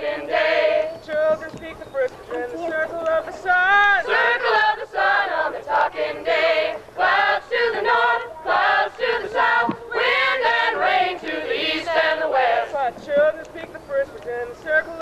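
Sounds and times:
voices singing together: 0.0s - 15.0s.

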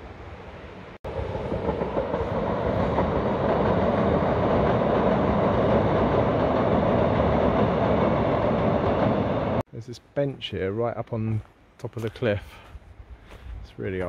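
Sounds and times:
train passing rumble: 0.0s - 9.6s.

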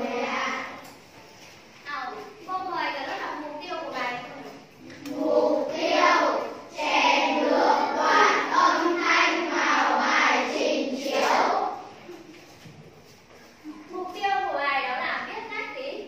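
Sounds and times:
children's voices in chorus: 0.0s - 0.7s, 5.0s - 11.9s.

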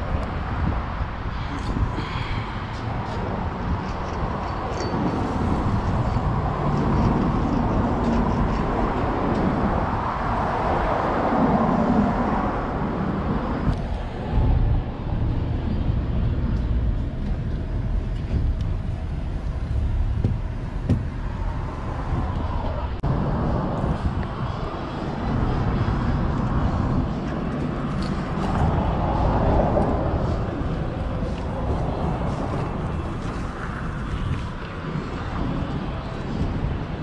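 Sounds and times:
street traffic rumble: 0.0s - 37.0s.

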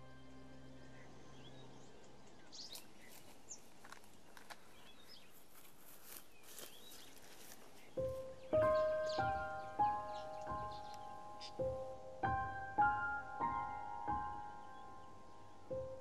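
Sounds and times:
small birds chirping: 0.0s - 16.0s
soft music: 0.0s - 16.0s
footsteps rustling through dry grass: 2.5s - 11.7s.

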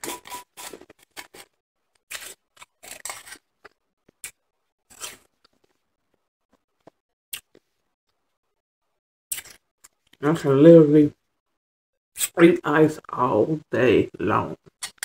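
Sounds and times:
chewing crushed ice: 0.7s - 5.7s.

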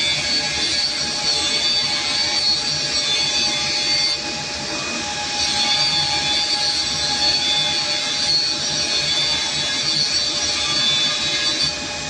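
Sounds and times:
high whining tones: 0.0s - 12.0s
machine whirring and humming: 0.0s - 12.0s.

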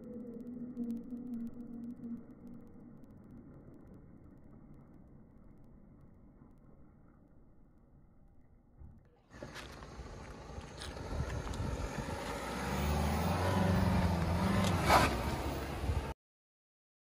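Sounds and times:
car engine running: 9.3s - 16.1s.

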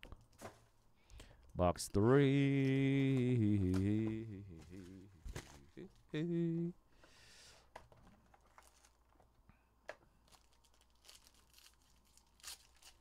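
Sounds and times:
packaging crinkling and tearing: 8.3s - 9.2s, 10.2s - 13.0s.

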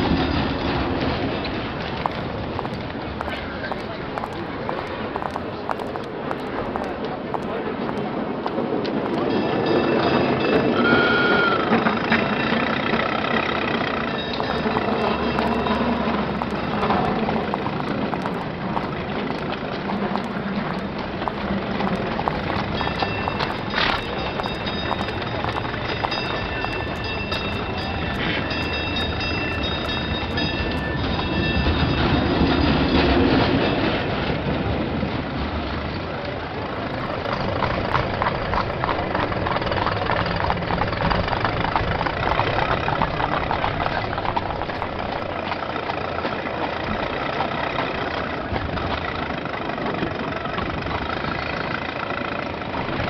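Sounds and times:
car engines: 0.0s - 53.0s
street traffic: 0.0s - 53.0s
cable car rumbling on rails: 6.9s - 53.0s
rhythmic clatter: 14.3s - 31.3s.

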